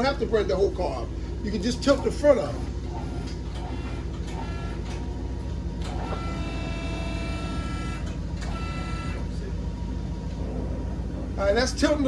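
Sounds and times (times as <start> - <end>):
hydraulic pump humming and whining: 0.0 - 12.0.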